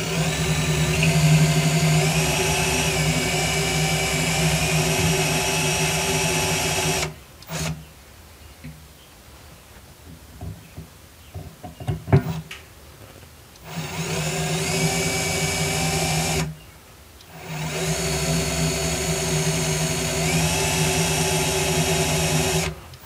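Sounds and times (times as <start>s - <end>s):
cordless drill whining: 0.0s - 7.8s, 13.6s - 16.5s, 17.3s - 22.8s.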